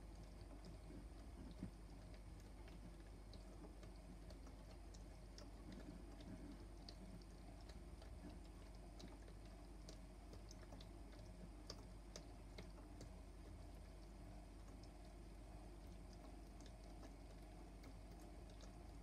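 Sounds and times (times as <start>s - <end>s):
drum clicks and ticks: 0.0s - 19.0s
toy washing machine motor hum: 0.0s - 19.0s.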